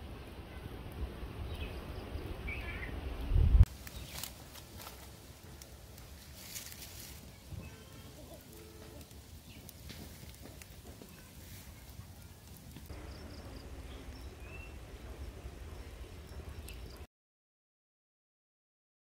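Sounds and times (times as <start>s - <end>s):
low rumble on microphone: 0.9s - 3.7s, 12.8s - 17.1s.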